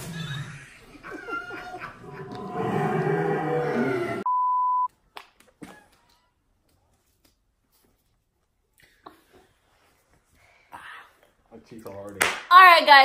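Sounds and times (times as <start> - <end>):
single-tone beep: 4.3 - 4.9.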